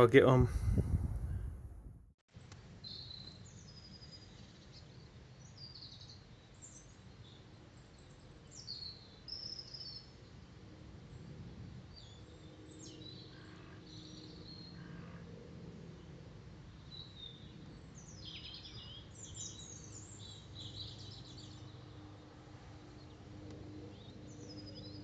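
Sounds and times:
small birds chirping: 0:02.8 - 0:10.4, 0:16.8 - 0:22.1.

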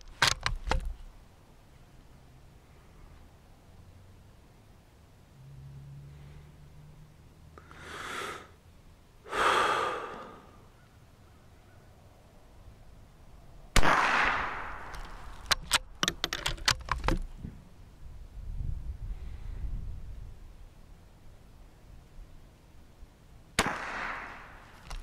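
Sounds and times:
rifle bolt clicking: 0:00.0 - 0:01.0, 0:14.3 - 0:17.3
person breathing slowly: 0:06.0 - 0:06.9, 0:07.6 - 0:08.6, 0:09.2 - 0:10.8
rifle shot: 0:13.8 - 0:16.0, 0:23.6 - 0:24.8.

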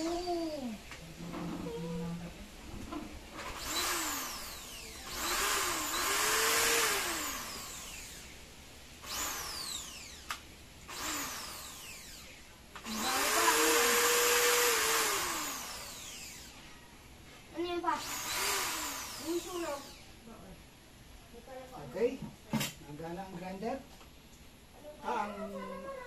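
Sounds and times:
drill click: 0:03.4 - 0:08.3, 0:09.0 - 0:16.6, 0:18.0 - 0:20.0
drill motor whining: 0:03.4 - 0:08.4, 0:09.0 - 0:16.6, 0:18.0 - 0:20.1.

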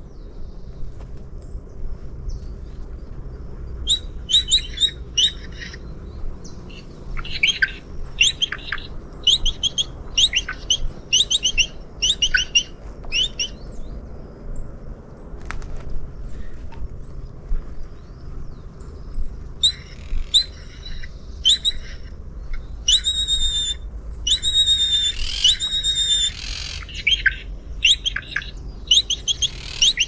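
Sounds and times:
steady low rumble: 0:00.0 - 0:25.6
birds chirping: 0:00.0 - 0:30.0.

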